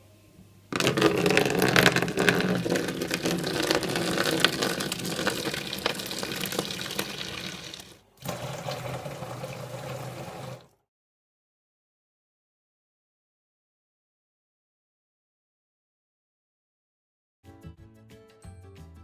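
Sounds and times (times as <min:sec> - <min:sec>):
tap running into metal sink: 0:00.8 - 0:10.7
toilet flushing: 0:00.8 - 0:10.8.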